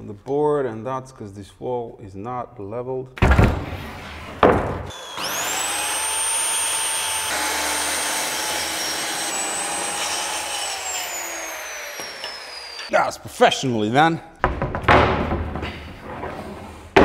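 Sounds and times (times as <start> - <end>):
circular saw cutting board: 3.6 - 12.9.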